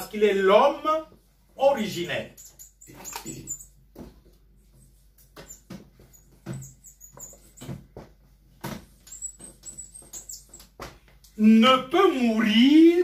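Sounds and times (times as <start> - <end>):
marker pen writing on paper: 2.4 - 3.8, 4.7 - 7.8, 8.8 - 10.8.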